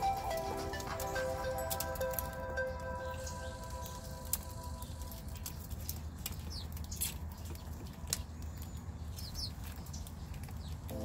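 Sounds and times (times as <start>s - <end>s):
high bird chirps: 0.0s - 7.8s
birds pecking on metal tray: 0.0s - 11.0s.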